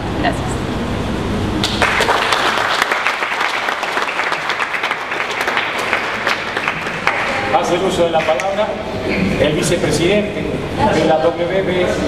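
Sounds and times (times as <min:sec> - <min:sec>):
audience applauding: 0:01.6 - 0:08.6.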